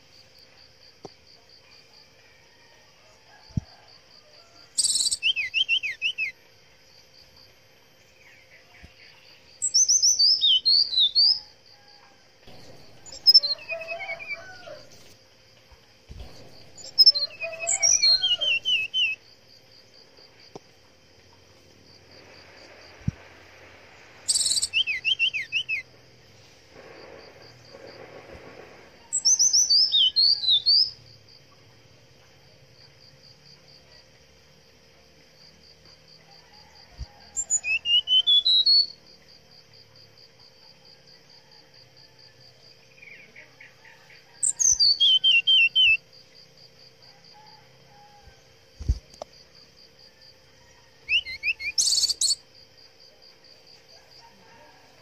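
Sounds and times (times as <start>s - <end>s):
insect trill: 0.0s - 55.0s
bird singing whistled notes: 4.8s - 6.4s, 8.4s - 11.5s, 12.8s - 14.7s, 16.2s - 19.2s, 24.3s - 25.9s, 29.1s - 31.0s, 37.4s - 39.0s, 44.4s - 46.0s, 51.1s - 52.4s.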